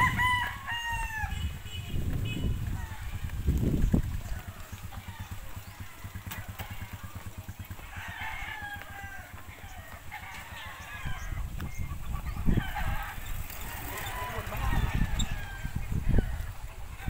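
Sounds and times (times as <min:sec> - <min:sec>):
rooster crowing: 0:00.0 - 0:01.4, 0:07.8 - 0:11.5, 0:12.5 - 0:16.6.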